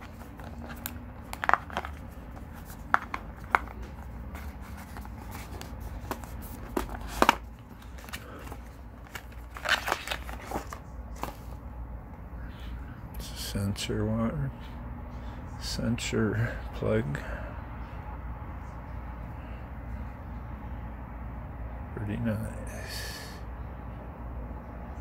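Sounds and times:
cardboard rustle: 0:00.0 - 0:11.6
low steady hum: 0:00.0 - 0:25.0.

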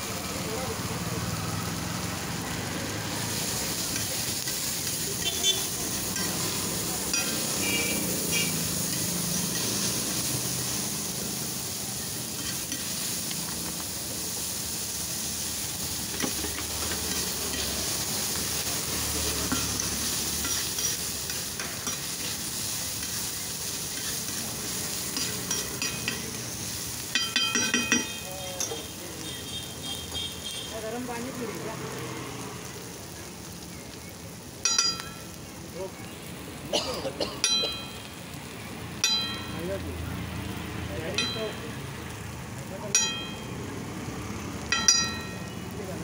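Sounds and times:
vegetables sizzling on hot plate: 0:00.0 - 0:46.0
metal spatula scraping: 0:19.5 - 0:22.3, 0:23.9 - 0:24.5
sharp metal clinks: 0:25.2 - 0:26.3, 0:27.1 - 0:28.8, 0:34.6 - 0:35.3, 0:39.0 - 0:39.7, 0:41.1 - 0:41.8, 0:42.9 - 0:43.6, 0:44.7 - 0:45.6.

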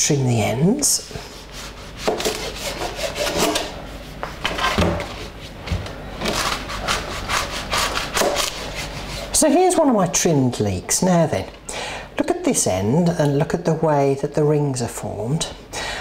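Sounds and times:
knife sawing through leek: 0:01.2 - 0:03.7, 0:06.3 - 0:09.4.

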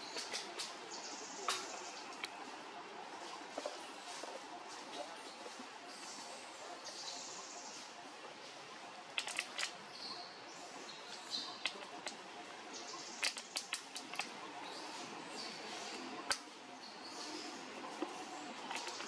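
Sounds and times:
twigs snapping and clicking: 0:09.2 - 0:09.8, 0:13.2 - 0:14.3.

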